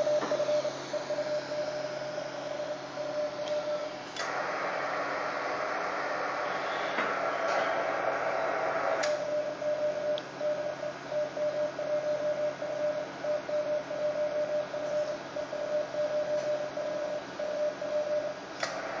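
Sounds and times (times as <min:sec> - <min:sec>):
morse code beeps: 0:00.0 - 0:03.9, 0:09.3 - 0:18.4.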